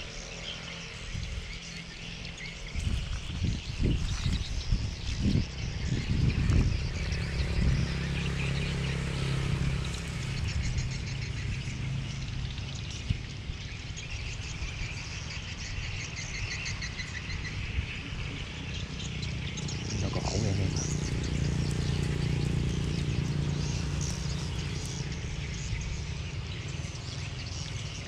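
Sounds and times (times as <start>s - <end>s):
low rumble on microphone: 0.0s - 15.8s
insects and birds chirping: 0.0s - 28.0s.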